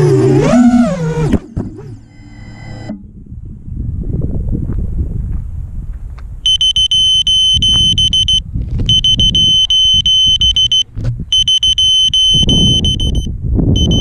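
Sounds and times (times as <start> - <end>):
low rumble of wind: 0.0 - 14.0
rapidly pulsing electronic beep: 6.5 - 14.0.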